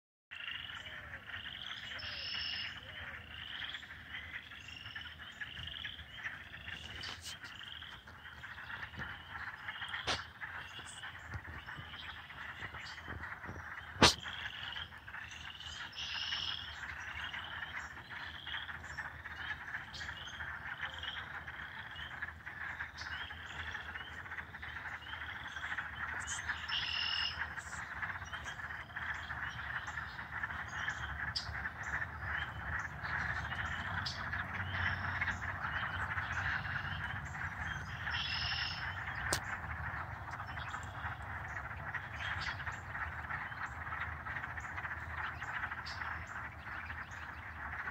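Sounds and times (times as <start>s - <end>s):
chorus of frogs calling: 0.3s - 47.9s
frog's short high chirps: 13.9s - 14.8s.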